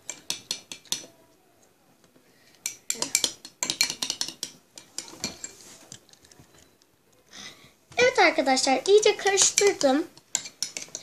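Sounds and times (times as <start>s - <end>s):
metal spoon clinking in glass bowl: 2.6s - 5.6s.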